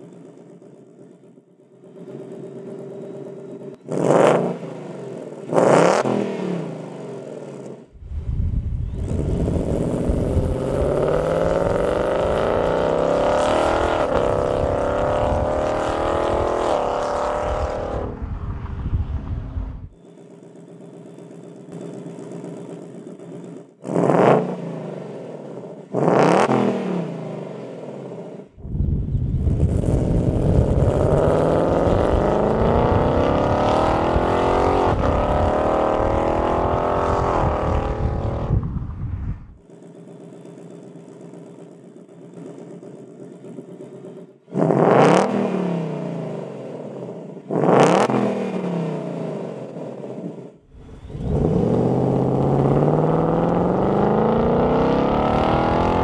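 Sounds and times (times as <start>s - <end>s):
car engine idling and revving: 0.0s - 56.0s
car engine accelerating hard: 1.8s - 7.9s, 9.0s - 56.0s.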